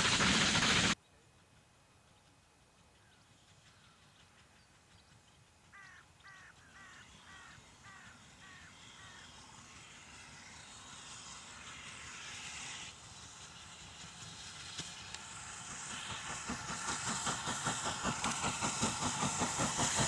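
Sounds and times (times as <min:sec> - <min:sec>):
distant steam train: 0:00.0 - 0:20.0
crow cawing: 0:05.7 - 0:09.2.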